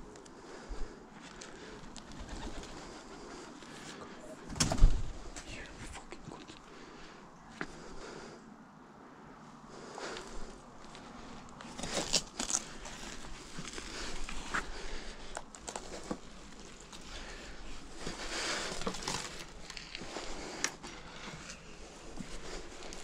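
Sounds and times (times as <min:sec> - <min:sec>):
crunching and crackling: 0:09.8 - 0:23.0.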